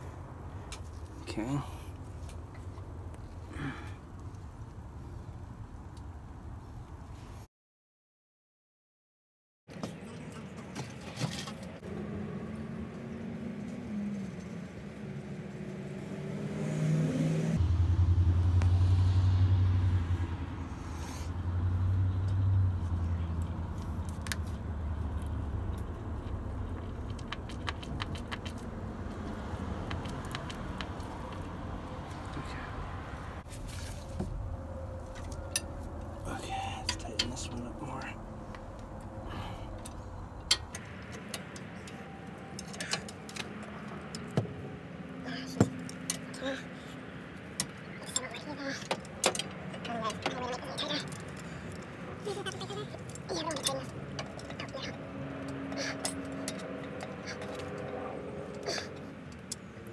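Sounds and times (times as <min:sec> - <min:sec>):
vehicle engine running: 0:17.6 - 0:41.2.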